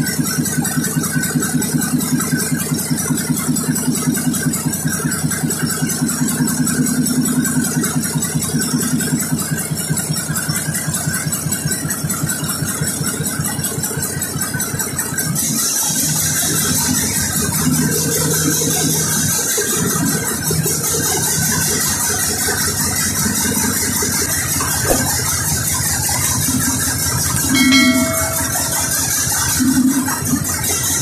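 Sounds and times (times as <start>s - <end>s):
diesel generator engine clatter: 0.0s - 31.0s
short chime-like tone: 27.6s - 29.1s.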